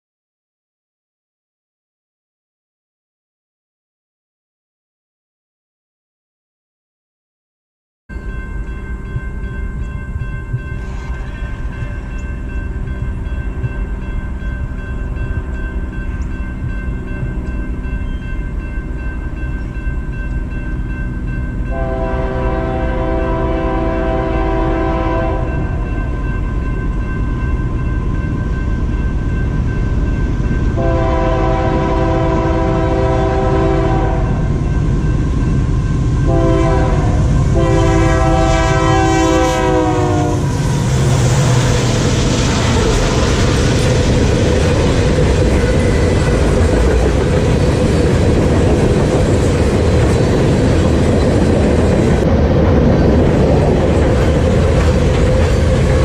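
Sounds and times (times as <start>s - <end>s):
train rumbling past: 8.1s - 56.0s
locomotive air horn blasts: 21.7s - 25.9s, 30.8s - 34.5s, 36.2s - 40.6s.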